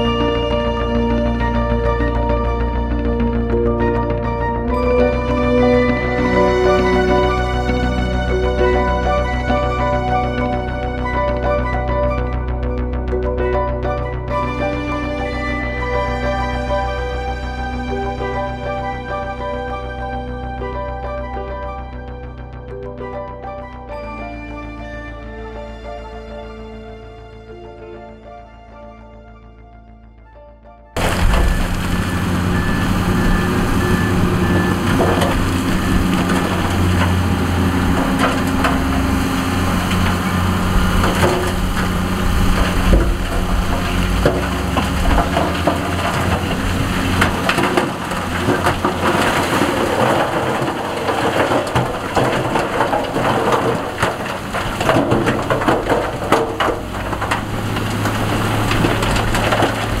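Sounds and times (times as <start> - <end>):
diesel engine running: 0.0 - 23.2, 31.0 - 60.0
rocks grinding and clattering: 31.0 - 60.0.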